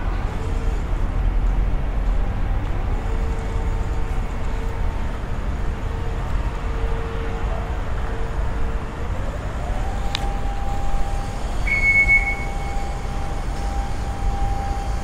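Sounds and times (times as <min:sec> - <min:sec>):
low street rumble: 0:00.0 - 0:15.0
brief high whistle-like tone: 0:10.9 - 0:15.0.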